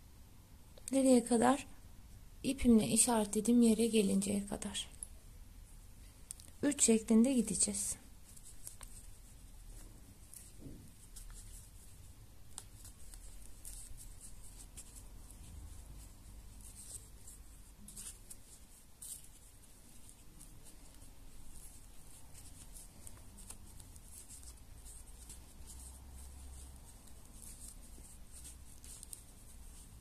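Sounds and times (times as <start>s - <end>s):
crochet hook scratching through yarn: 7.6s - 30.0s.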